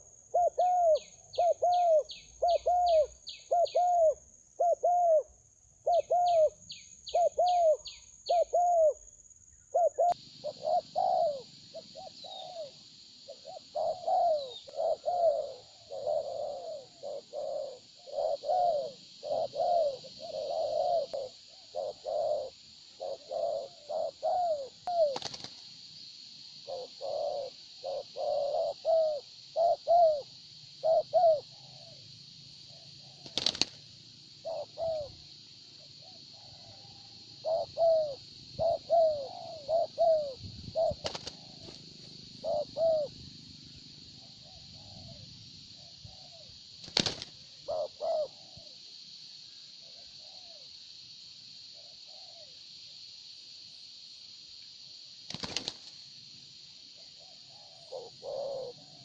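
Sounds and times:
doves cooing: 0.0 - 9.0, 9.7 - 25.6, 26.6 - 35.3, 36.0 - 48.8, 51.8 - 52.6, 57.0 - 59.0
steady high hiss: 9.0 - 59.0.

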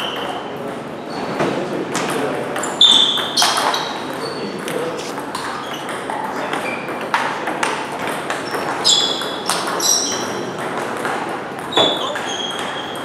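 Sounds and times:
table tennis ball pinging: 2.0 - 4.8, 5.4 - 13.0.

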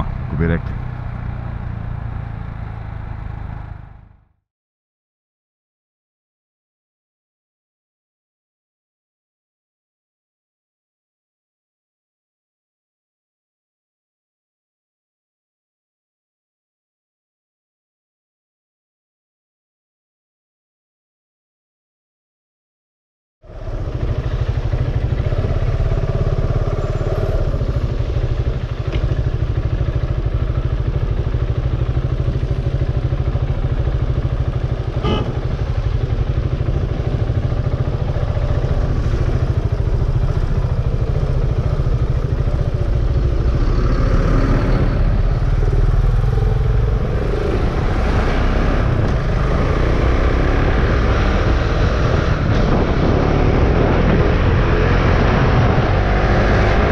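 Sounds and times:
motorcycle engine running: 23.4 - 56.9
wind rumble on microphone: 46.9 - 56.9.

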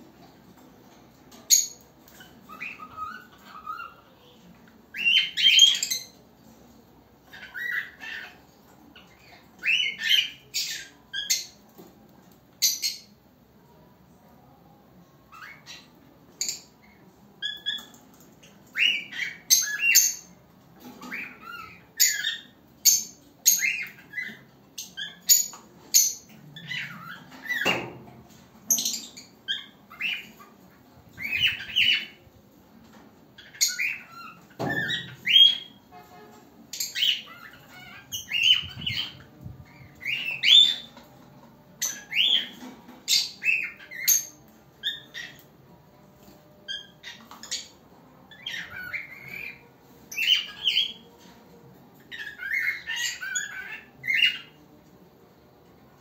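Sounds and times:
cockatiel chirping and whistling: 31.2 - 32.2, 48.3 - 49.6.

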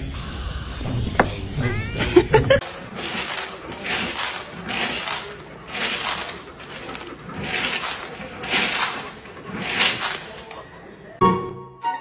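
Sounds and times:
dog crunching kibble from bowl: 2.9 - 10.6.

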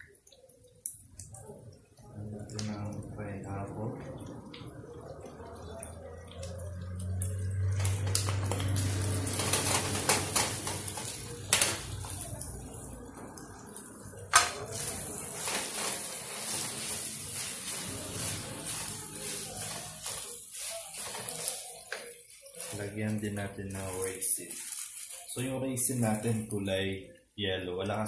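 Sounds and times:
food sizzling in frying pan: 4.0 - 25.5
spatula scraping pan: 14.6 - 22.8.

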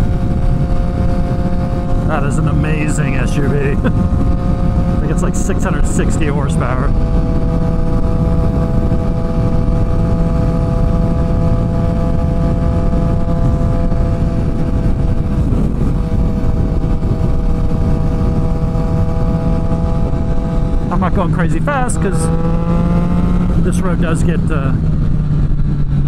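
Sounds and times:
motorcycle engine cruising: 0.0 - 26.0
riding wind rush: 0.0 - 26.0.

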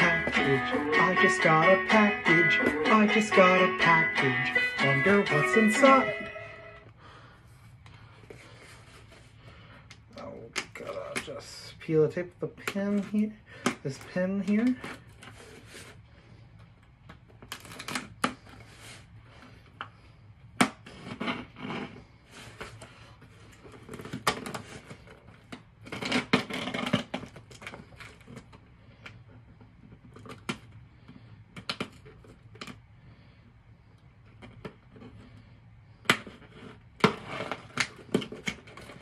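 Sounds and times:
packing tape peeling off box: 17.4 - 18.9.

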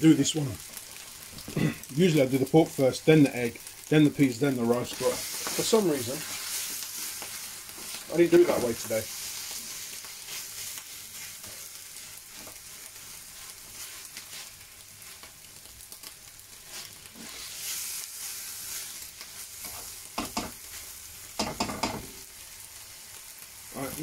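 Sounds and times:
food sizzling in a pan: 0.0 - 24.0
utensil clattering against pan: 21.4 - 22.1.

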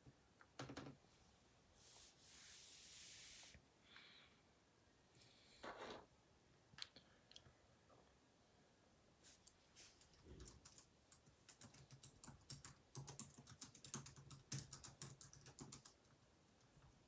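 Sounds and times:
typing on computer keyboard: 10.0 - 16.1.

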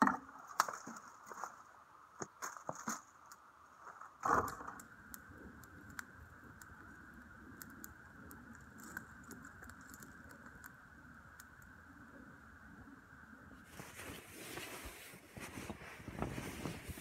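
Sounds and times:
campfire crackling: 0.0 - 12.5.

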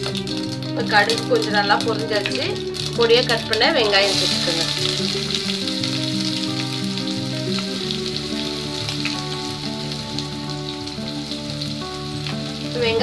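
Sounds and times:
background music: 0.0 - 13.0
onions sizzling in hot oil: 0.0 - 13.0.

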